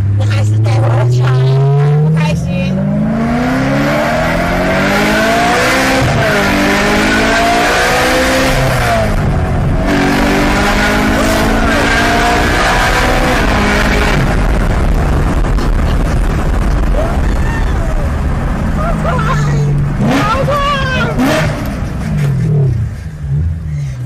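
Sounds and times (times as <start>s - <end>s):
car engine accelerating: 0.0s - 24.0s
road and wind noise: 0.0s - 24.0s.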